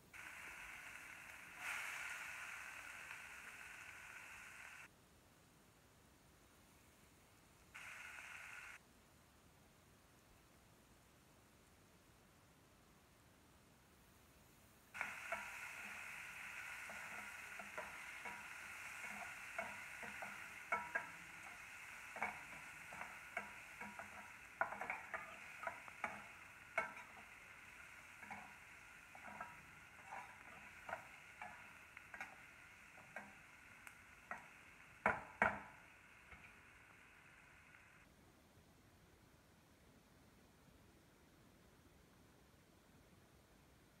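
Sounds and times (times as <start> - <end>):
onions sizzling in oil: 0.0 - 4.9, 7.8 - 8.8, 14.9 - 38.1
spatula scraping metal pan: 15.0 - 33.4.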